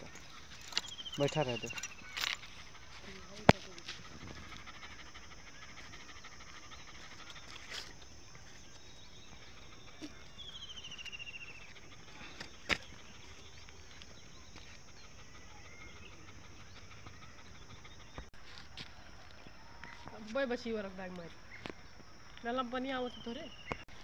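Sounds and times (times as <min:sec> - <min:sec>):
dog panting: 0:00.0 - 0:18.4.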